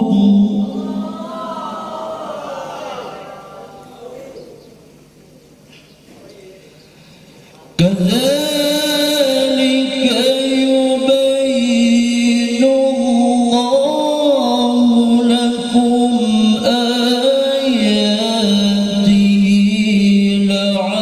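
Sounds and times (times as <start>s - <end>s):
man reciting melodically: 0.0s - 1.2s, 7.7s - 21.0s.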